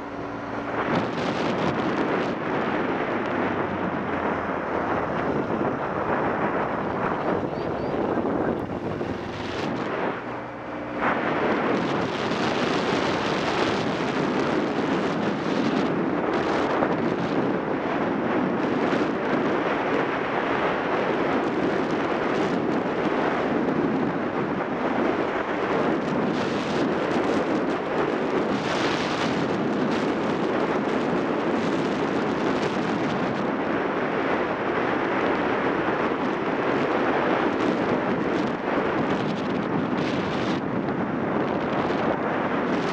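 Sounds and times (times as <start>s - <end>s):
wind buffeting microphone: 0.0s - 42.9s.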